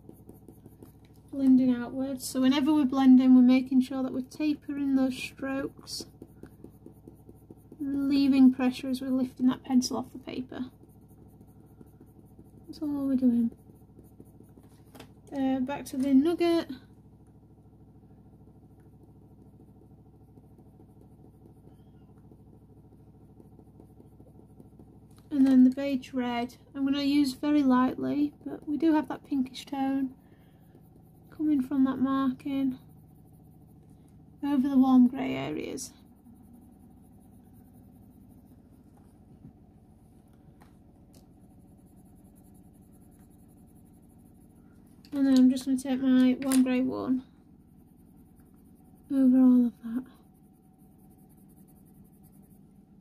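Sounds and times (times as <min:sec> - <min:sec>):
pencil scratching on paper: 0:00.0 - 0:16.6, 0:18.7 - 0:53.0
low electrical hum: 0:00.0 - 0:53.0.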